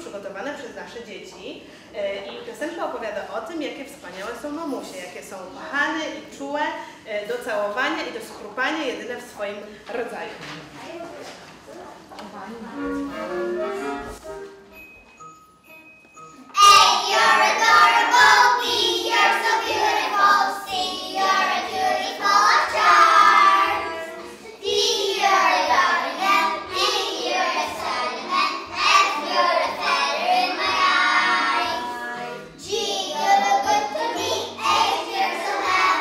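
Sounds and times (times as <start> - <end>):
children singing together: 16.6 - 36.0.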